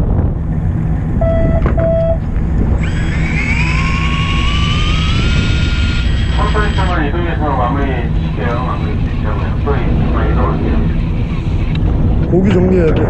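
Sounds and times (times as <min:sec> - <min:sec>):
boat engine rumble: 0:00.0 - 0:13.0
short beeps: 0:01.2 - 0:02.2
electric fishing reel whine: 0:02.7 - 0:07.0.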